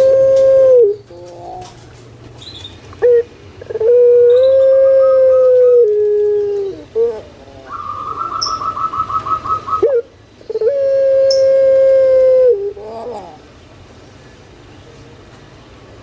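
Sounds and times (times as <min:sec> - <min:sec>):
dove cooing: 0:00.0 - 0:01.8, 0:03.0 - 0:13.5.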